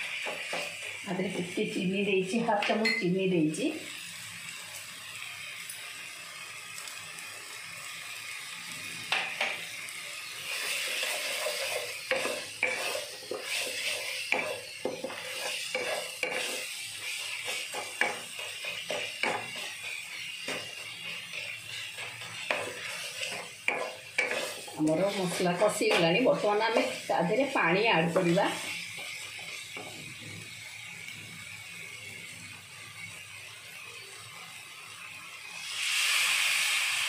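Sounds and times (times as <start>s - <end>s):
paste sizzling in pan: 0.0s - 37.0s
wooden spatula scraping pan: 10.5s - 30.1s.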